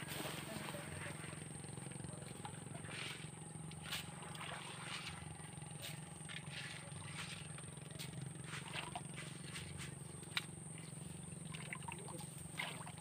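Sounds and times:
low motor hum: 0:00.0 - 0:13.0.

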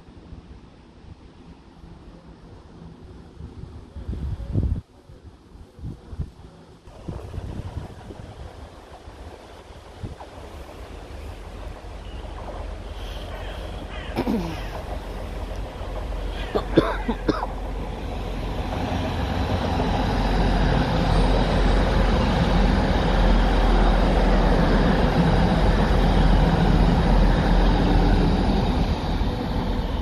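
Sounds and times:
diesel train engine hum: 0:00.0 - 0:30.0
train wheels on rails: 0:06.9 - 0:30.0.

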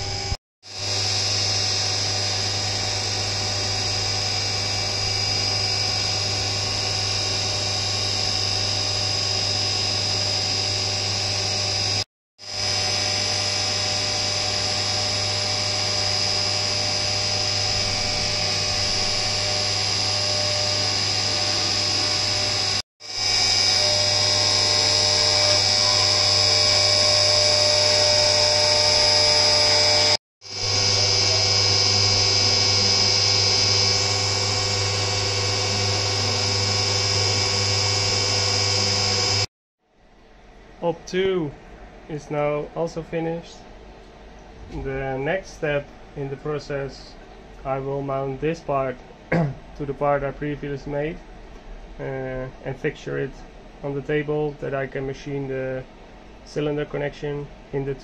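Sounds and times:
high-pitched milling spindle tone: 0:00.0 - 0:39.5
low machine hum: 0:00.0 - 0:58.0.

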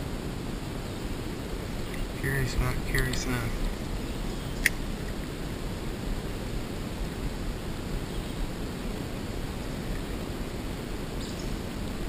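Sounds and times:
steady rushing outdoor noise: 0:00.0 - 0:12.0
sharp click: 0:04.6 - 0:04.8.

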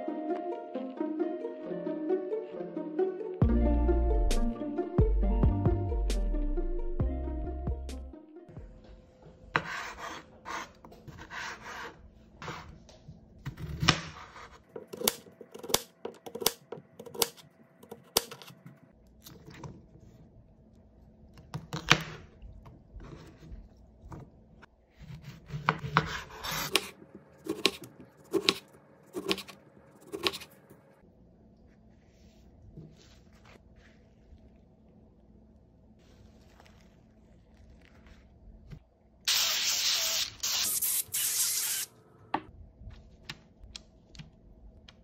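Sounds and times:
rustling handling: 0:36.0 - 0:38.9.

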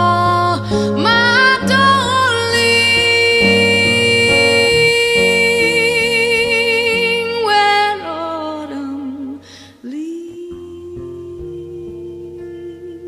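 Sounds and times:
music steady held note: 0:00.0 - 0:13.0
held note with vibrato: 0:02.6 - 0:05.6.

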